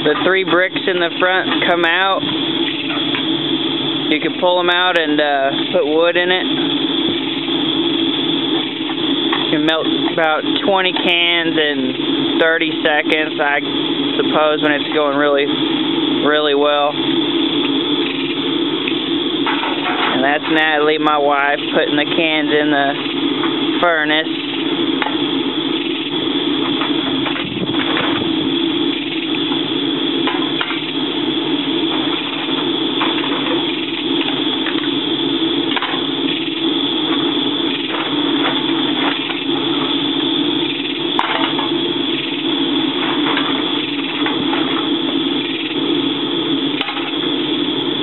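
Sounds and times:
air blower running: 0:00.0 - 0:48.0.

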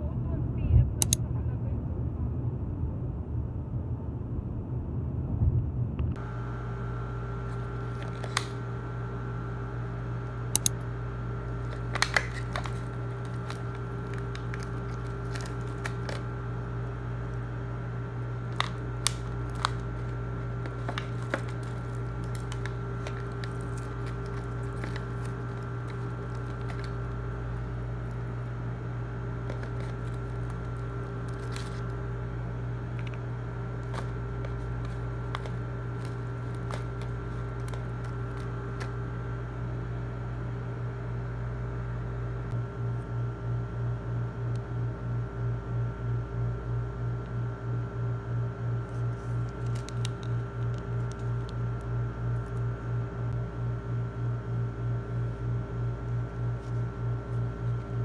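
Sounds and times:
steady machine hum: 0:00.0 - 0:58.0
food packaging crinkling: 0:11.5 - 0:17.4, 0:18.4 - 0:39.0.

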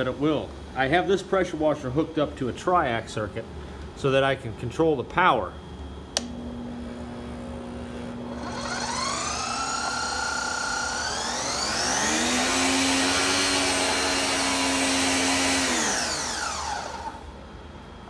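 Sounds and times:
pressure washer motor whining: 0:06.2 - 0:17.4.

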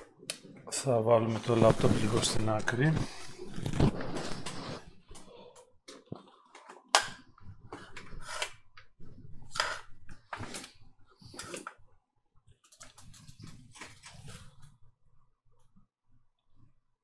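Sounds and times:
rustling scrapes on work mat: 0:01.3 - 0:05.0.

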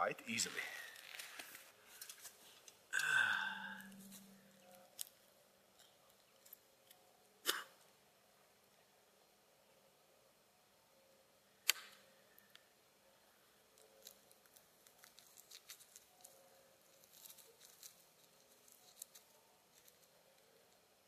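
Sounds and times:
small clicks and rustles: 0:00.9 - 0:02.9, 0:13.7 - 0:20.8.

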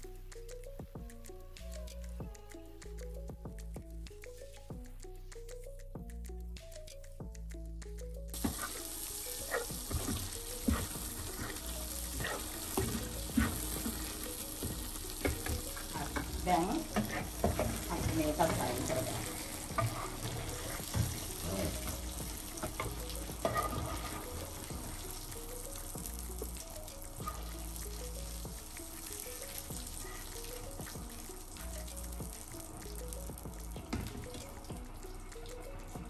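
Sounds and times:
spatula tapping and scraping pan: 0:08.4 - 0:08.9, 0:09.5 - 0:24.9
prawns sizzling in oil: 0:08.4 - 0:36.0.

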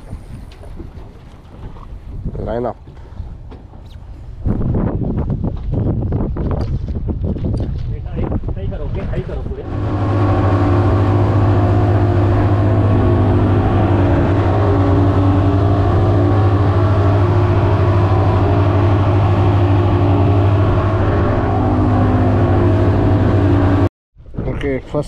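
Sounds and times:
outboard motors droning: 0:08.9 - 0:23.9.

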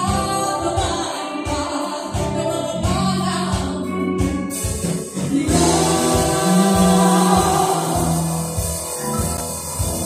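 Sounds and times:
women singing: 0:00.0 - 0:04.5, 0:05.2 - 0:08.7
drums: 0:00.0 - 0:10.0
electric guitar: 0:00.0 - 0:10.0.

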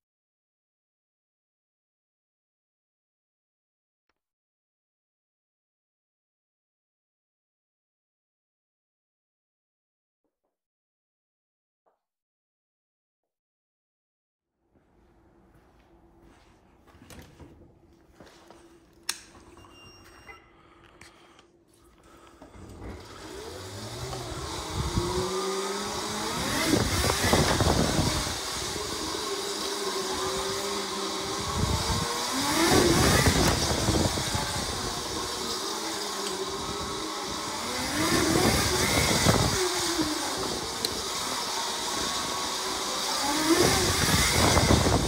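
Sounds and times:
electric motor whining: 0:22.3 - 0:45.0.

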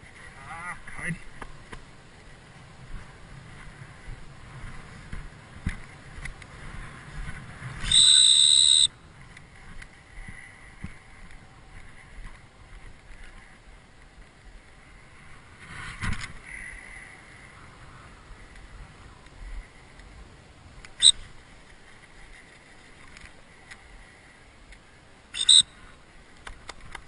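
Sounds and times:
high-pitched dog whistle blast: 0:07.8 - 0:08.9, 0:25.4 - 0:25.7.

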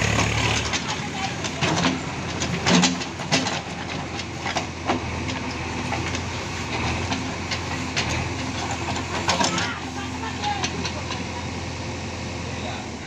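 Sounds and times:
diesel engine running: 0:00.0 - 0:13.0
metal knocks and clanks: 0:00.2 - 0:06.2.

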